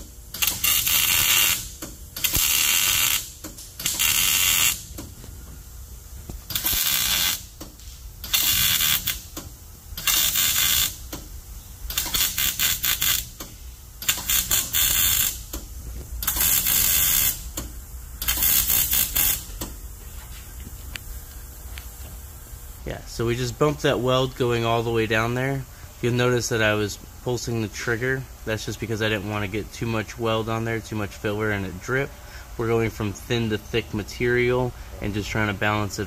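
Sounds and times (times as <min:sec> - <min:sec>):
welder arc crackling: 0:00.3 - 0:05.4, 0:06.1 - 0:19.9.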